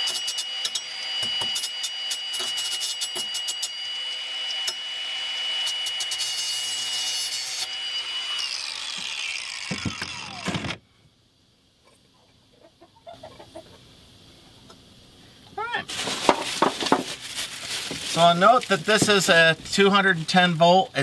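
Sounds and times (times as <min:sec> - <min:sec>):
angle grinder cutting steel: 0:00.0 - 0:10.8
grinder disc spinning down: 0:07.6 - 0:10.8.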